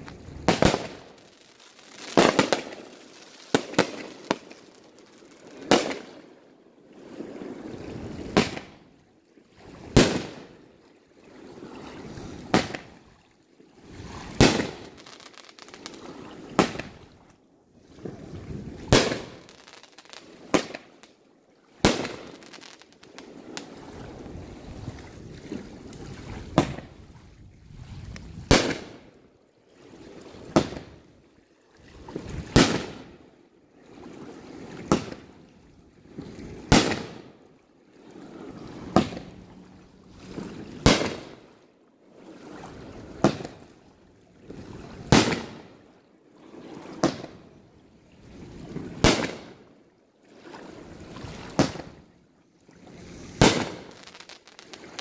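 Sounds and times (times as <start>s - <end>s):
fireworks hissing and banging: 0.0s - 6.1s, 14.4s - 16.9s, 18.9s - 21.0s, 21.8s - 23.8s, 36.7s - 37.2s, 38.9s - 39.3s, 40.8s - 41.3s, 51.5s - 51.9s, 53.2s - 55.0s.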